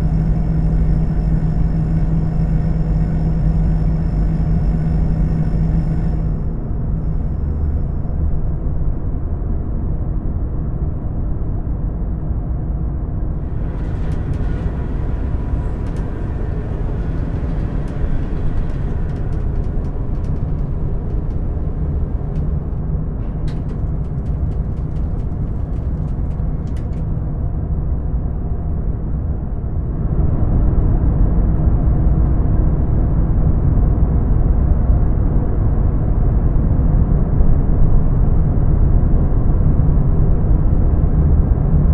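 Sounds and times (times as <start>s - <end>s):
low rumbling drone: 0.0s - 10.0s, 13.4s - 31.0s.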